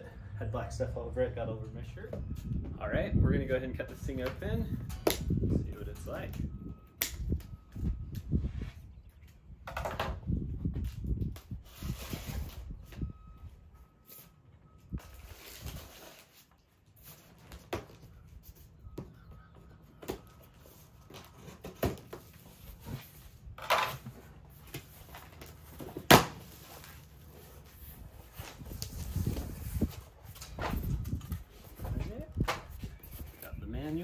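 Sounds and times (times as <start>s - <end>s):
cardboard and tape rustling: 14.9s - 18.8s, 19.4s - 34.0s.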